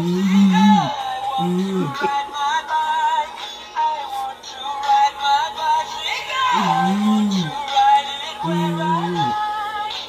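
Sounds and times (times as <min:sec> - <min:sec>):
toy playing electronic sung tune: 0:00.0 - 0:02.1, 0:06.4 - 0:09.8.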